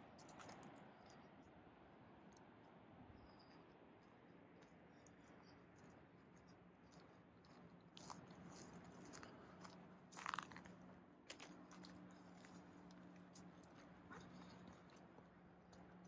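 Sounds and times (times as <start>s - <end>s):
footsteps crunching on dirt: 8.0s - 12.0s.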